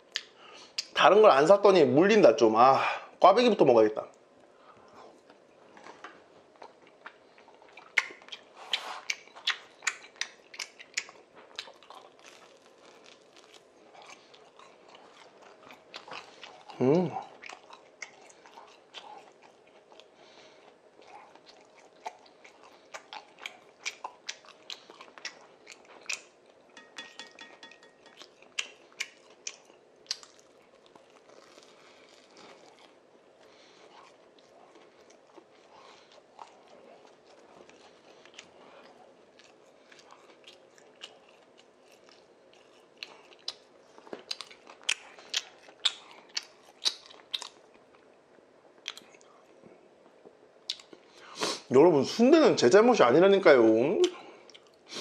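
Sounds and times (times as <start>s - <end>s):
chewing and crunching doughnut: 4.1s - 26.9s, 27.5s - 51.7s, 53.0s - 55.0s
wet mouth clicks: 7.8s - 11.7s, 44.3s - 47.6s.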